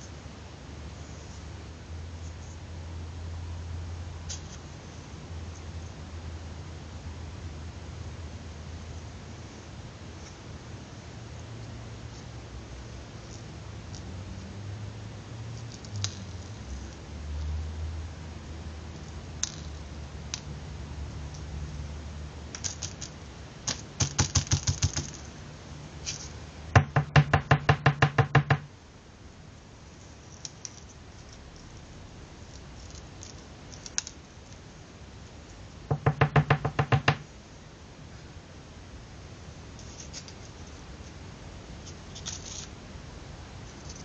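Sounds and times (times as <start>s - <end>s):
rapid knocking: 26.8s - 28.7s, 35.9s - 37.2s.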